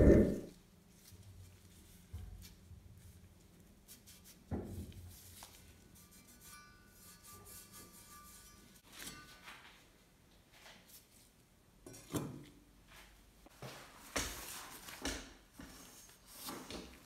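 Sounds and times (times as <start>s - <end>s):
metal trowel scrape: 5.8s - 9.6s.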